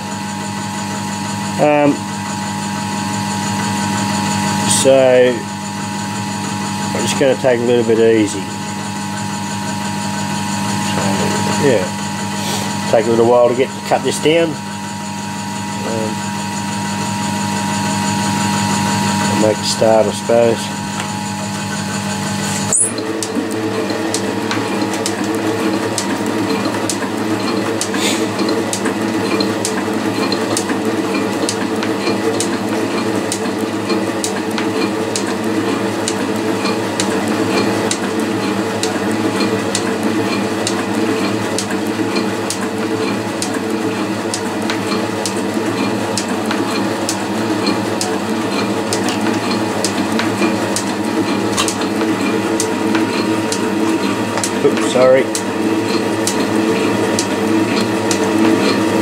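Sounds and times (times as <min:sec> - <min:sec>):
metal shaper humming: 0:15.7 - 0:59.0.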